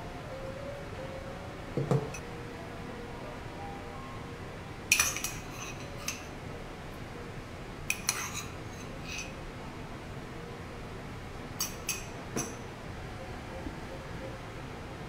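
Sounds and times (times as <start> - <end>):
metal spoon clinking on plate: 4.9 - 6.3, 7.9 - 9.4, 11.6 - 12.6.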